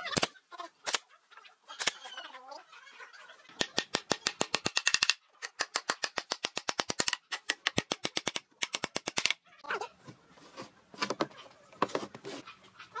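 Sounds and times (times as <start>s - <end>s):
hammer driving nails into wood: 3.6s - 9.4s.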